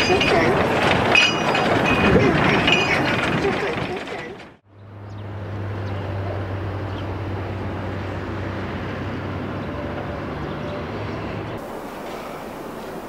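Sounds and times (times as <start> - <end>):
rough even rumble: 0.0 - 4.6.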